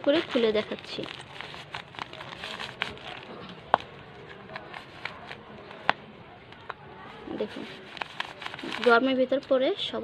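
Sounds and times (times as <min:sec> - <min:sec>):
paper wrapper crinkling: 0:00.0 - 0:06.0, 0:07.3 - 0:09.2.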